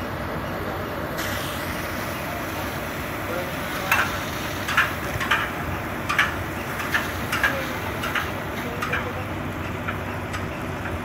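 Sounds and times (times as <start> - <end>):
fire hose water jet rushing: 1.2 - 9.2.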